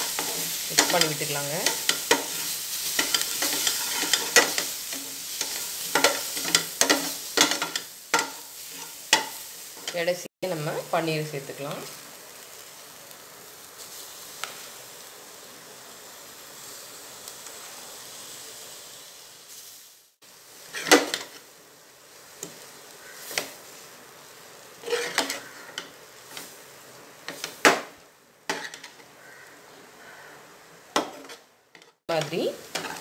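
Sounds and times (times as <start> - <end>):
metal spoon scraping pan: 0.0 - 10.1, 20.7 - 21.3, 24.8 - 26.4, 28.5 - 29.0, 31.0 - 33.0
paneer sizzling in butter: 0.0 - 33.0.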